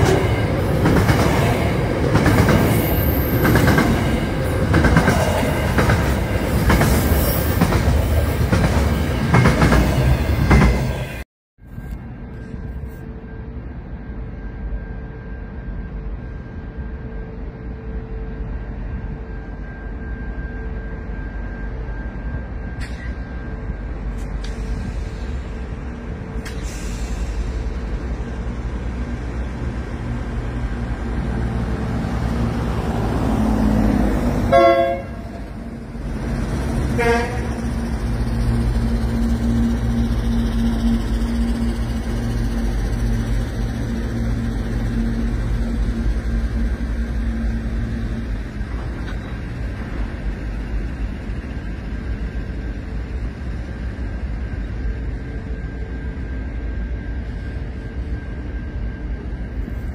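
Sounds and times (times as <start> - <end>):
diesel locomotive engine rumbling: 0.0 - 59.9
train rolling by: 0.0 - 59.9
train horn: 34.4 - 35.8, 36.9 - 37.8.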